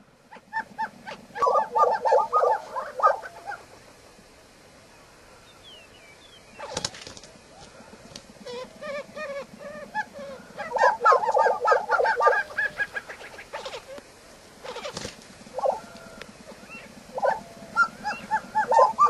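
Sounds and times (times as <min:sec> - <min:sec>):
prairie chickens clucking: 0:00.0 - 0:04.6, 0:05.2 - 0:19.0
sharp short bird calls: 0:05.5 - 0:19.0.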